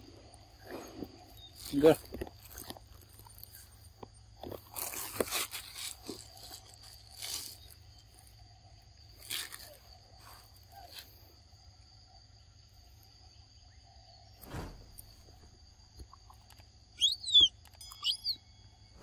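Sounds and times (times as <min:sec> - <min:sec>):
monkey biting and chewing fruit: 0:00.9 - 0:07.7.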